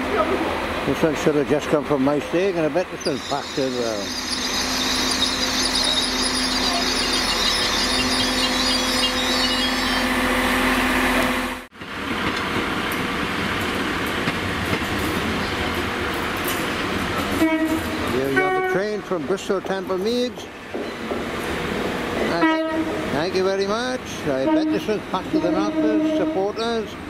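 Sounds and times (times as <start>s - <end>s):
train engine hum: 0.0s - 27.0s
train rail rumble: 0.0s - 27.0s
high wheel squeal: 2.9s - 11.6s, 24.3s - 26.9s.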